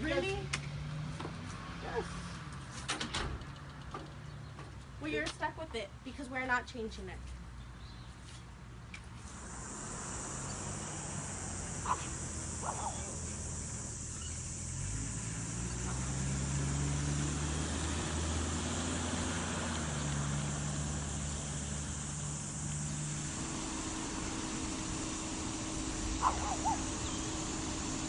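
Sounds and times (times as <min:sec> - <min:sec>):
insects buzzing: 0:09.2 - 0:28.0
low hum changing pitch: 0:09.4 - 0:28.0.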